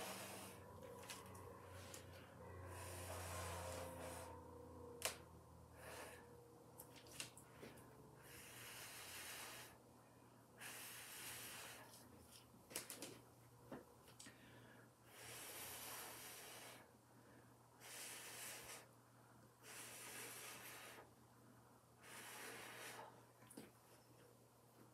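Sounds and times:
person blowing through pursed lips: 0.0s - 0.8s, 2.6s - 4.5s, 19.6s - 21.1s.

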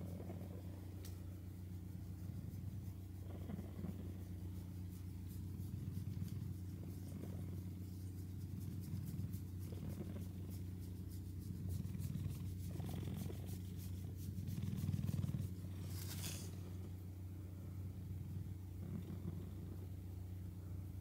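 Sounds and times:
cat purring: 0.0s - 20.3s
brief rustle: 15.8s - 16.7s.

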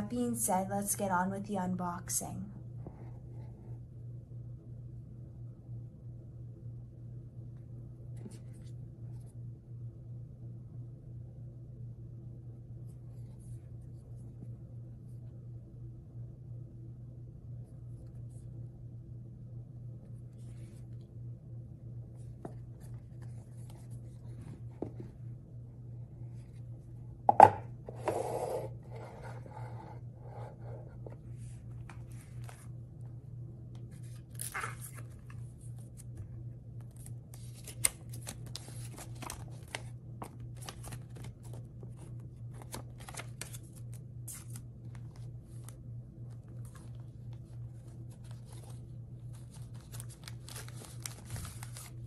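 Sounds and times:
steady low hum: 0.0s - 52.0s
rustling of card and paper: 8.1s - 9.4s, 12.9s - 14.5s, 20.0s - 21.1s, 22.1s - 25.2s, 28.9s - 33.0s, 33.8s - 52.0s.

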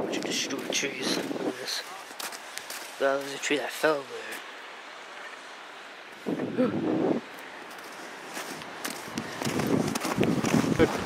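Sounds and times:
outdoor background hiss: 0.0s - 11.0s
footsteps crunching on sand: 0.2s - 4.6s, 7.3s - 11.0s.

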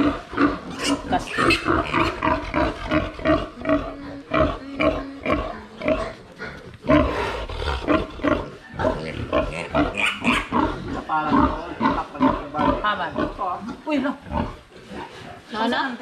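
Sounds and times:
piglet squealing: 0.7s - 2.2s, 9.9s - 10.5s.

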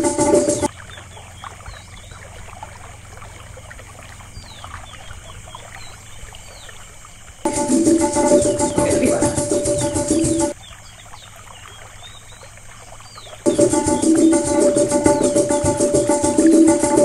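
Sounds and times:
high falling chirps: 0.0s - 0.7s, 7.5s - 10.6s, 13.5s - 17.0s
trickling water: 0.0s - 17.0s
sitar music: 7.5s - 10.5s, 13.5s - 17.0s.

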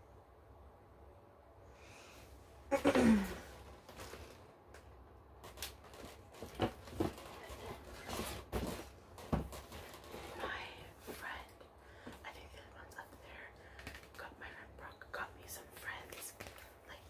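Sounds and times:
objects tapping and rustling: 5.4s - 10.3s.

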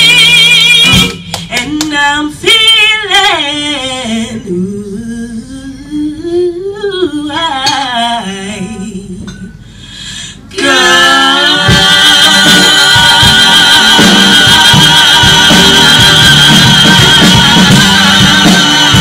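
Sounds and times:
big band sustained chord: 11.7s - 19.0s.

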